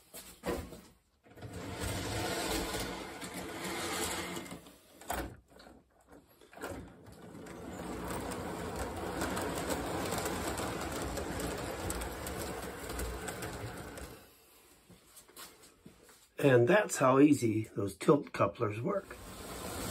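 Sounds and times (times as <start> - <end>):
toy train rumbling on track: 1.4 - 4.6, 6.6 - 14.4, 19.1 - 19.9.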